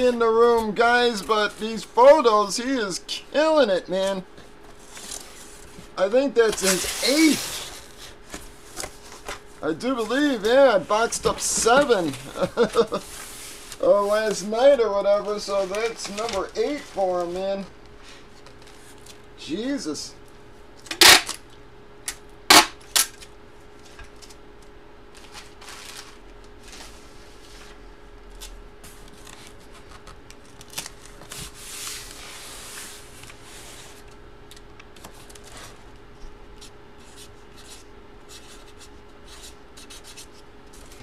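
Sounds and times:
plastic rustling and rubbing: 4.7 - 19.2, 25.2 - 27.8.

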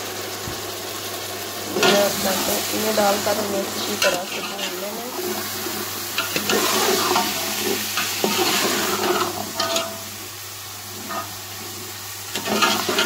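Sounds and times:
chickpeas sizzling in hot oil: 0.0 - 13.0.

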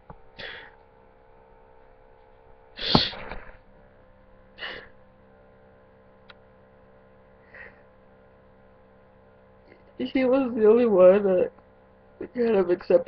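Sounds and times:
sharp burst of breath: 0.4 - 0.8, 2.8 - 3.4, 4.6 - 5.0
person sniffing: 2.8 - 3.5, 4.6 - 4.9
person crying quietly: 4.6 - 5.0.

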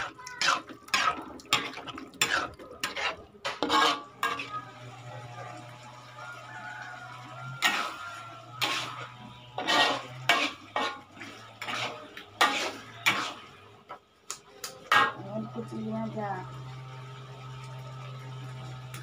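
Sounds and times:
metal ladle scraping a wok: 0.0 - 5.4, 6.3 - 13.9.

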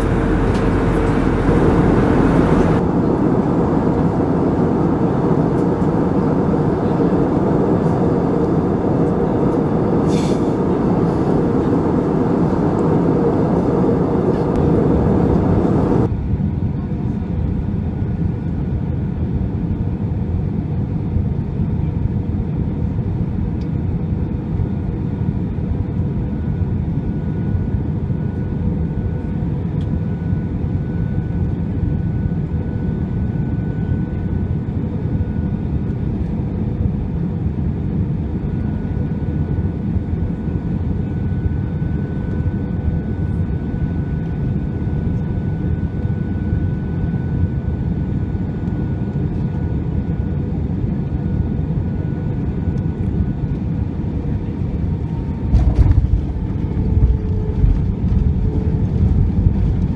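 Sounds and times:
faint high whine: 0.0 - 4.4
aircraft engines roaring: 0.0 - 59.9.

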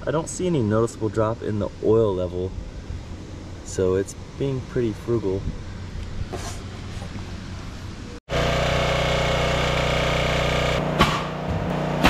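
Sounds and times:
small gas engine running: 8.3 - 12.0
sharp knock: 11.0 - 11.7.

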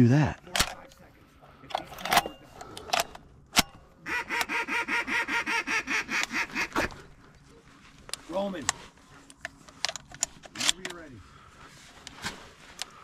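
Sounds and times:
duck quacks: 4.1 - 7.0.

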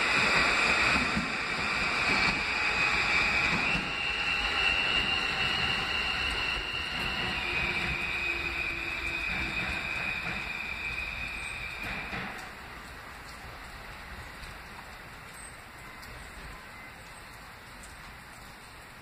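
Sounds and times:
steady high whine: 0.0 - 12.6
subway train running: 0.0 - 17.7.

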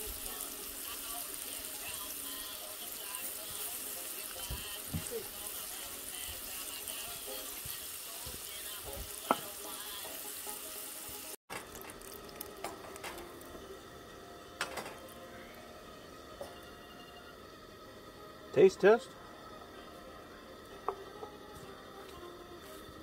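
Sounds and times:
fish sizzling in frying: 0.0 - 15.3.

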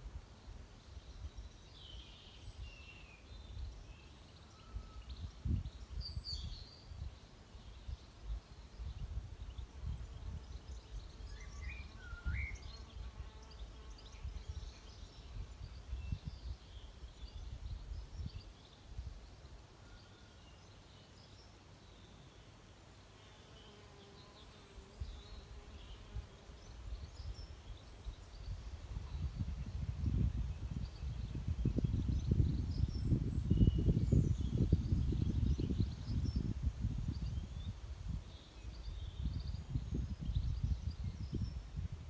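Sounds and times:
small birds chirping: 0.0 - 42.0
wind gusting on microphone: 28.1 - 42.0.

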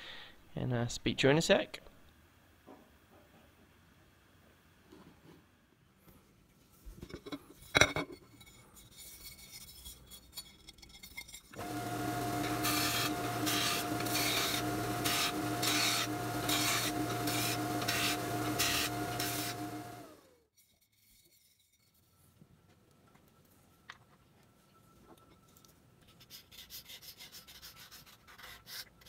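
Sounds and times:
metal rasping on sanding belt: 11.6 - 20.2
belt sander humming: 11.6 - 20.4.

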